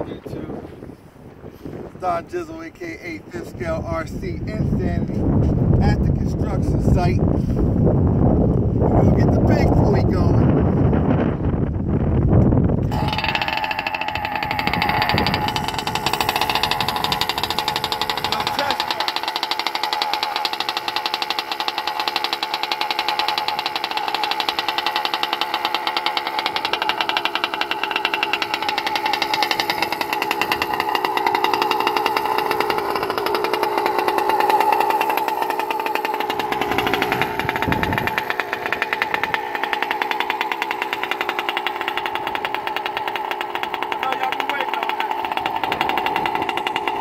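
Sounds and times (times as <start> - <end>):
two-stroke engine idling: 12.8 - 47.0.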